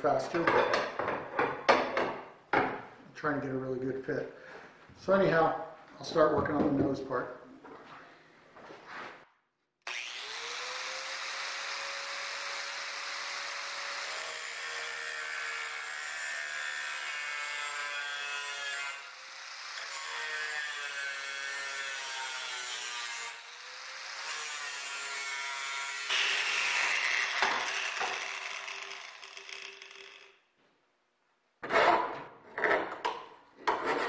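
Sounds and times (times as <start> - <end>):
angle grinder grinding steel: 9.9 - 30.4.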